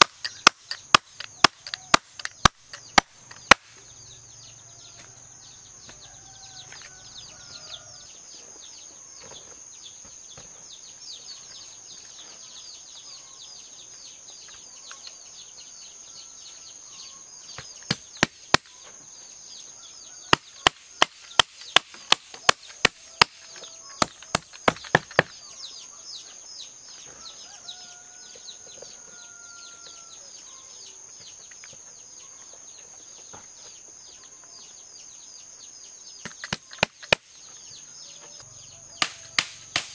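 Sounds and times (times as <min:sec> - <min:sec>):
blade chopping strikes: 0:39.0 - 0:39.9.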